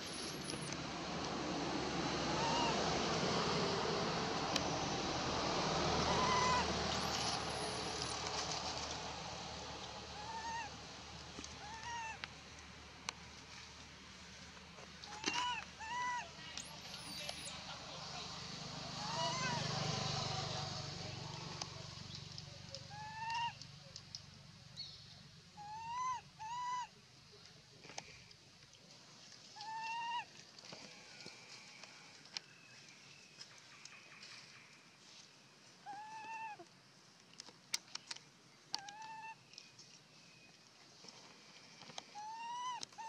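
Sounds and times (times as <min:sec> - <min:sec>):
rustling in dry leaves: 0:05.4 - 0:10.4
baby monkey coo calls: 0:15.1 - 0:17.5, 0:22.9 - 0:23.6, 0:25.6 - 0:26.9, 0:42.2 - 0:43.0.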